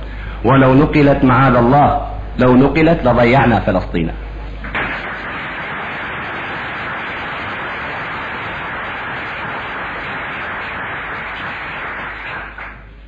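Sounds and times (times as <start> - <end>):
static hiss: 0.0 - 13.0.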